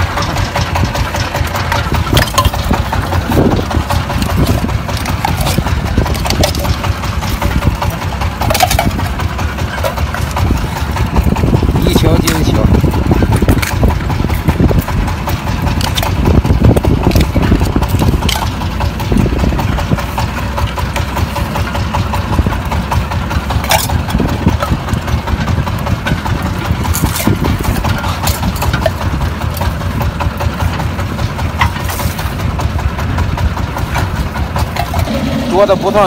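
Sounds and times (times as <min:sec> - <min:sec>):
cans and shells clattering on deck: 0:00.0 - 0:10.8
boat engine running: 0:00.0 - 0:36.0.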